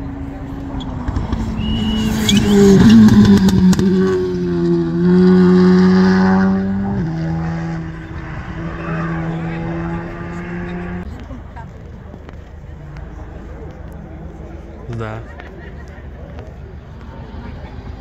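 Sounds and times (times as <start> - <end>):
rally car engine at full throttle: 0.0 - 11.2, 12.2 - 18.0.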